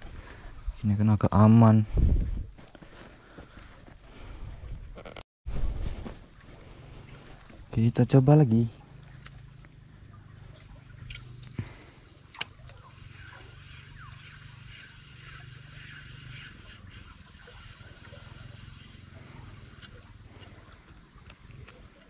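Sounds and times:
high-pitched insect drone: 7.3 - 22.0.

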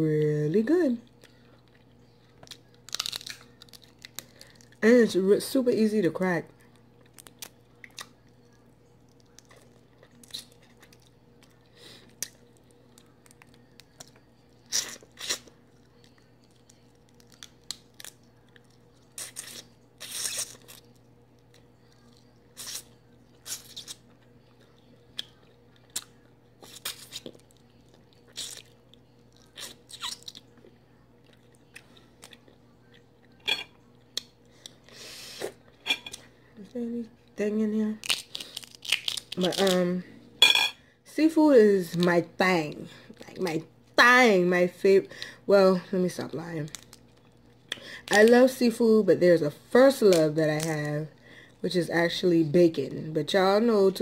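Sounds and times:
faint steady hum: 0.0 - 54.0
crab shell cracking: 2.4 - 4.7, 38.0 - 39.8
chewing: 6.6 - 34.9.

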